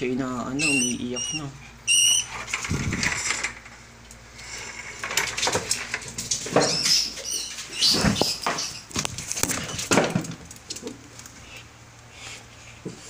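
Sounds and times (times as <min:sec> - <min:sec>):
rat squeaking in distress: 0:00.5 - 0:02.6, 0:06.6 - 0:08.9
objects knocking and rustling: 0:04.8 - 0:11.1.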